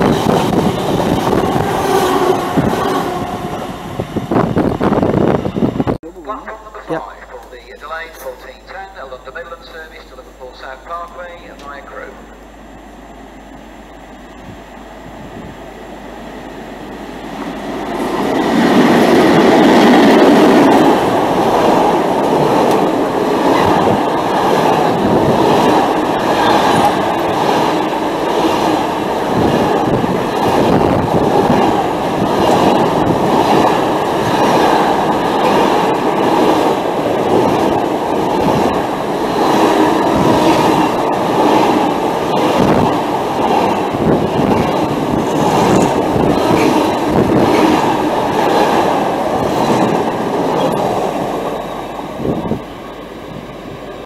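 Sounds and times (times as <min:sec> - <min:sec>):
freight train passing: 0:00.0 - 0:54.0
wheels clacking over rail joints: 0:17.4 - 0:52.0.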